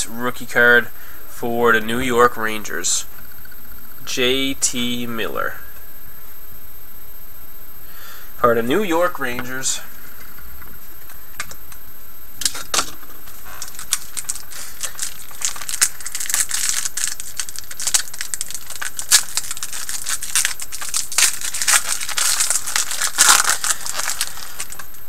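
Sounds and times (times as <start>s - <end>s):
card pack wrapper crinkling: 12.5s - 25.0s
cards being handled: 13.5s - 24.9s.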